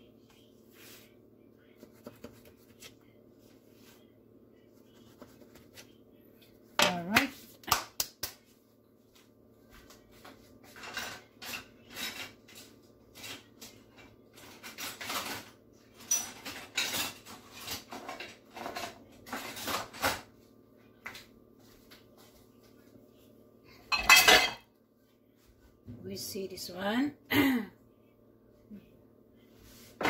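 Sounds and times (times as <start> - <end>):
plates and cutlery clinking: 23.9 - 24.7.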